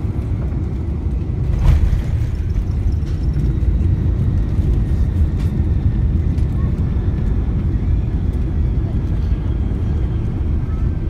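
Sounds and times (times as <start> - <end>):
airliner cabin rumble: 0.0 - 11.0.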